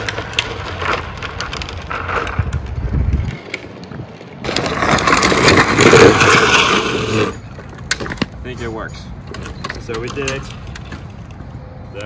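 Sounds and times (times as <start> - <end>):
plastic wheels grinding on asphalt: 0.0 - 8.3
wind on microphone: 2.3 - 4.1.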